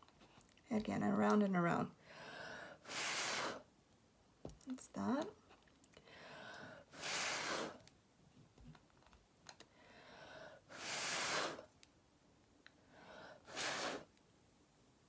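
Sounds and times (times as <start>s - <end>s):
person blowing out breaths: 2.0s - 3.7s, 6.0s - 7.8s, 9.7s - 11.7s, 12.9s - 14.1s
soft breath in: 2.0s - 3.7s, 6.0s - 7.8s, 9.7s - 11.7s, 12.8s - 14.1s.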